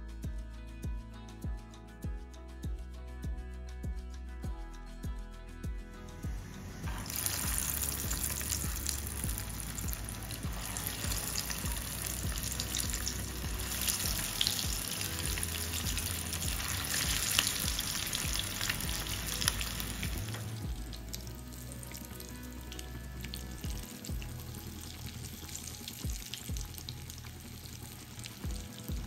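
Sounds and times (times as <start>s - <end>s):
meat patties sizzling in oil: 6.9s - 29.0s.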